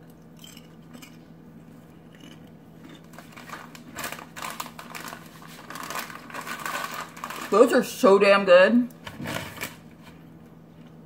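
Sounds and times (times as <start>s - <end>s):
chips being crunched: 2.2s - 7.6s
chip bag crinkling: 2.2s - 8.0s.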